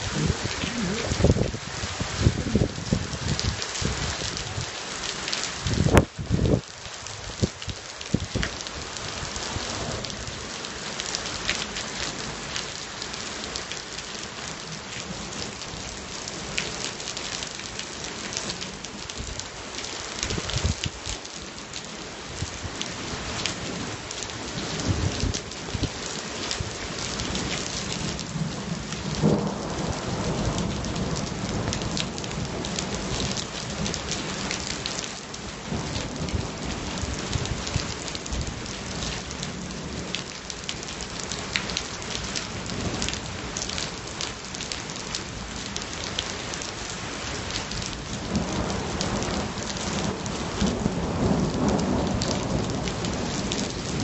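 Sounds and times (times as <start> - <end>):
low thunder rumbling: 0.0 - 4.6
heavy rain: 0.0 - 54.0
raindrops ticking close by: 0.0 - 54.0.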